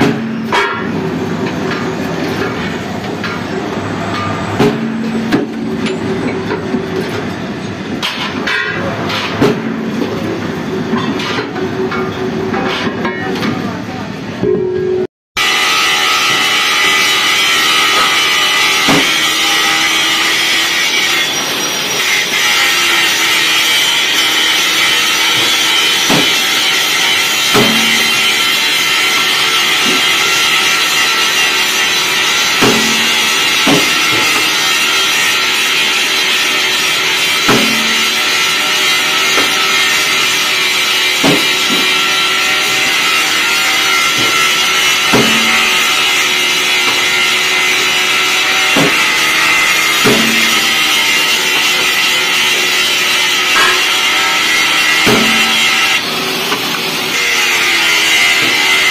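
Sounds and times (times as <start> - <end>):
metal clanks: 0.0 - 13.7, 22.0 - 56.8
workshop machinery hissing: 15.4 - 58.9.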